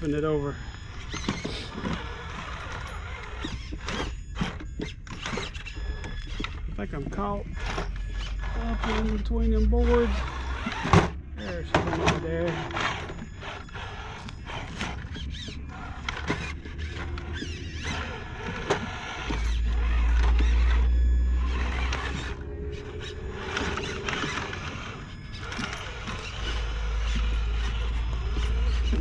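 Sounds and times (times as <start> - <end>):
toy car electric motor whining: 0.0 - 29.0
low rumble: 19.6 - 29.0.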